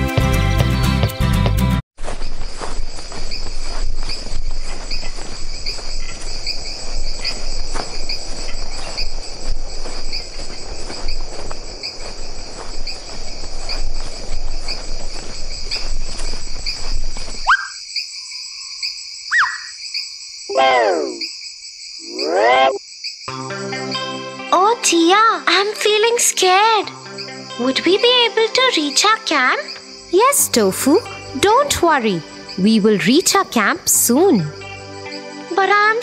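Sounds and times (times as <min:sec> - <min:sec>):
rustling noise: 0:02.0 - 0:17.5
crickets chirping: 0:02.0 - 0:23.9, 0:25.0 - 0:36.0
short downward sweeping calls: 0:19.3 - 0:19.8, 0:20.5 - 0:21.3, 0:22.0 - 0:22.8.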